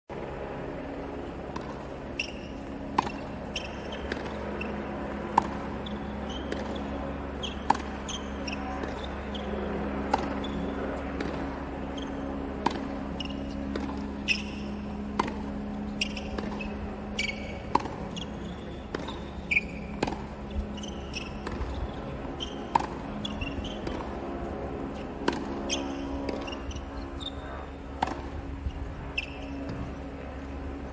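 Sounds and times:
low hum: 0.1 - 30.9
ball bouncing on hard court: 1.5 - 9.5, 10.1 - 24.1, 25.2 - 27.4
tennis ball struck by racket: 1.5 - 24.2, 24.9 - 26.8, 28.0 - 28.4.

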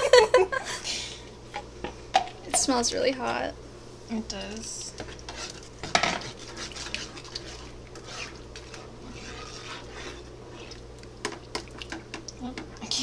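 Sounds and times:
spoon stirring in a pan: 4.6 - 13.0.

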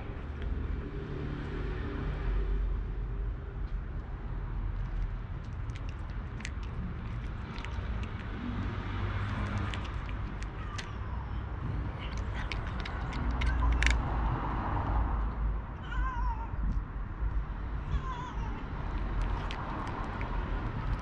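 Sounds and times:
steady low rumble: 1.8 - 21.0
cat crunching dry kibble: 4.7 - 11.2, 12.0 - 14.3, 18.8 - 21.0.

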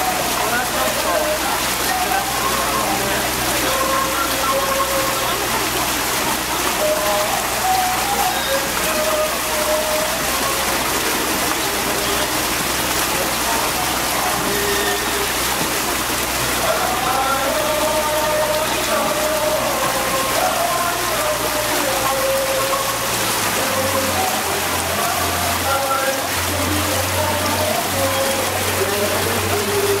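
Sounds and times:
boat motor: 0.0 - 30.0
faint melody: 0.0 - 30.0
water along the hull: 0.0 - 30.0.

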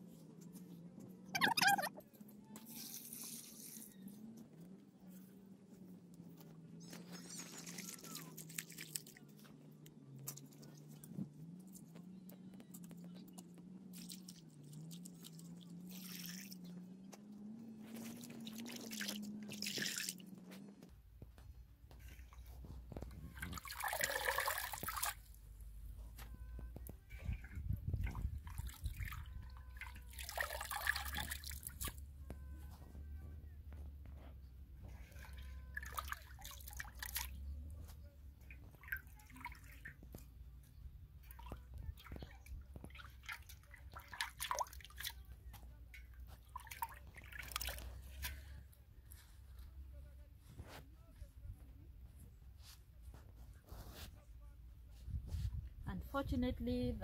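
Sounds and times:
water splashing: 18.0 - 20.2, 23.4 - 25.3, 28.0 - 32.0
water dripping and trickling: 18.0 - 20.3, 23.4 - 25.3, 27.2 - 32.0, 35.1 - 37.4, 38.6 - 40.2, 41.2 - 45.2, 46.0 - 48.2.

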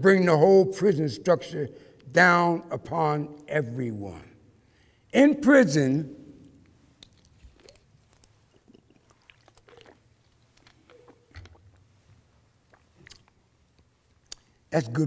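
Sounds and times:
man sipping: 7.2 - 13.4.

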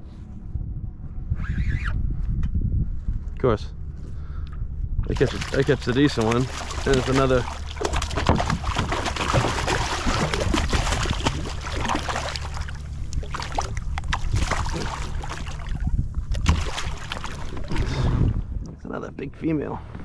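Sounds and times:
steady low rumble: 0.0 - 20.0
fish splashing at surface: 5.1 - 18.2.

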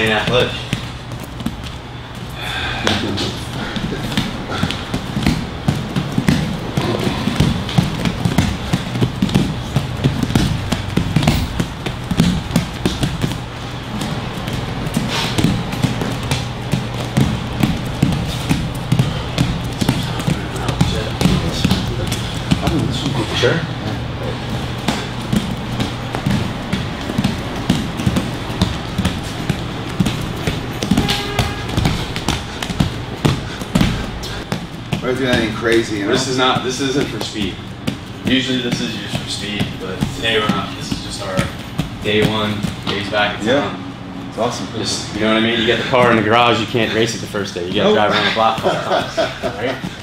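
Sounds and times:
bare feet slapping on mats: 0.0 - 50.0.

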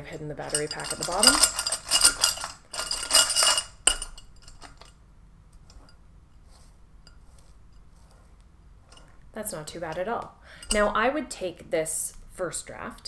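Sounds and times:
crinkling wire: 0.0 - 11.0
bulbs clinking against glass: 0.5 - 4.9.

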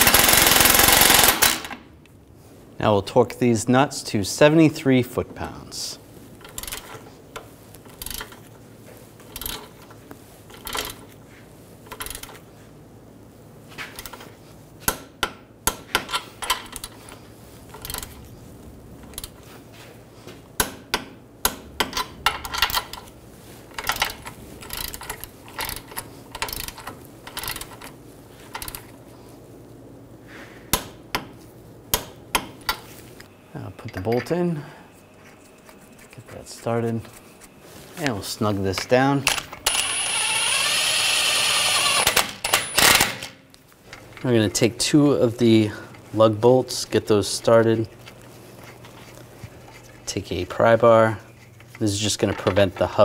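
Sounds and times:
torque wrench clicking: 39.3 - 43.0.

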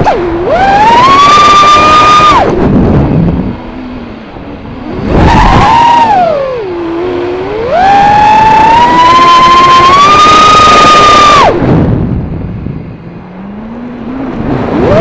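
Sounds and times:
quadcopter motors whining: 0.0 - 11.6.

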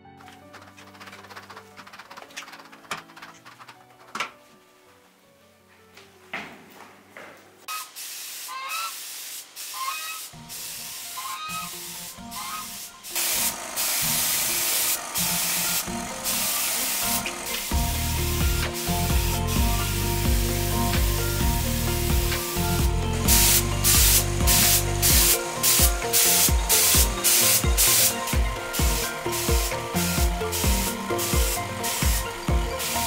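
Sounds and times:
paint spray gun hissing: 7.7 - 33.0
background music with bass beat: 16.9 - 33.0.

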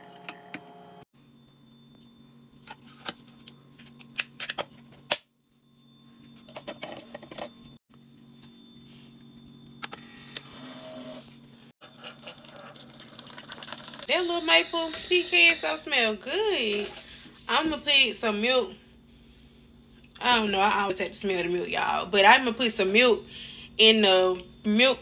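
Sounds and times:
steady low hum: 0.9 - 25.0
coffee pouring rush: 11.8 - 14.2.

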